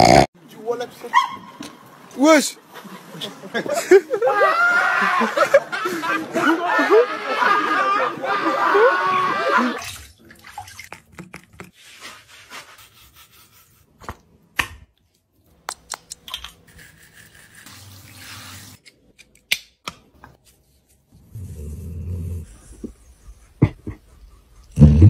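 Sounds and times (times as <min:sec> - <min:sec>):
water dripping: 0:09.8 - 0:11.7
sponge rubbing wet fur: 0:11.7 - 0:14.0.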